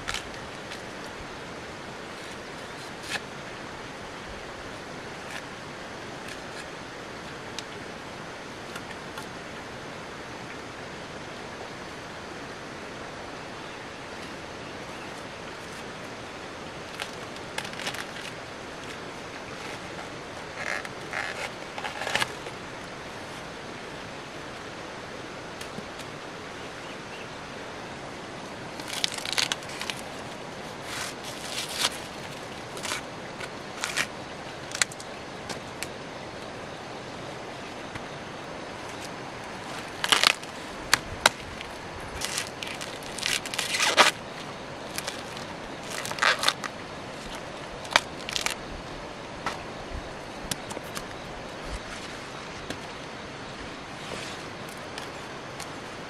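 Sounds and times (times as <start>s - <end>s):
steady outdoor hiss: 0.0s - 56.0s
rustles and snaps: 16.9s - 22.6s, 28.8s - 36.0s, 38.8s - 48.6s.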